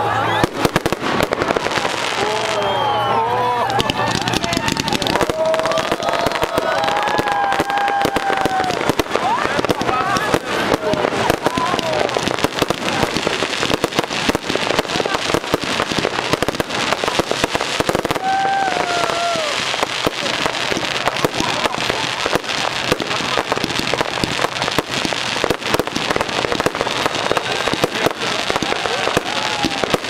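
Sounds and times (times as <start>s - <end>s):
fireworks popping and crackling: 0.0s - 30.0s
falling firework whistle: 0.1s - 12.5s, 17.1s - 20.6s.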